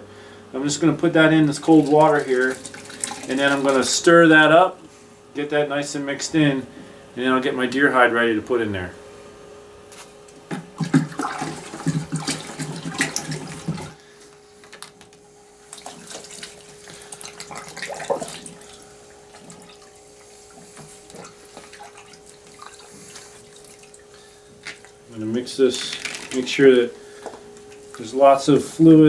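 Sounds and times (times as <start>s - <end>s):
water sloshing in a bucket: 0.9s - 4.3s, 10.4s - 14.0s, 15.6s - 27.0s.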